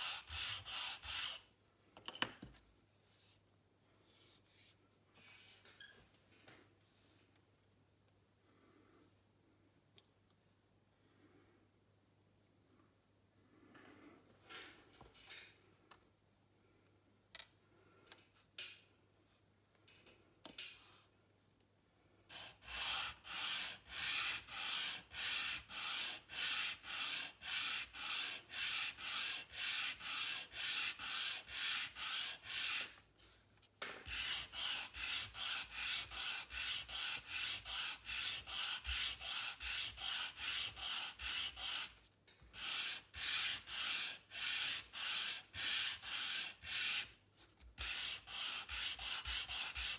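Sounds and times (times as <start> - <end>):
sanding block rubbing wood: 0.0 - 1.4, 22.3 - 33.0, 34.1 - 47.2, 47.8 - 49.9.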